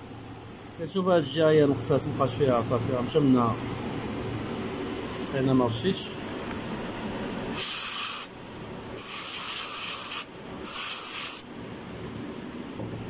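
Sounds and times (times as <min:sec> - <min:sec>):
aerosol can spraying: 0:07.6 - 0:08.3, 0:09.0 - 0:11.5.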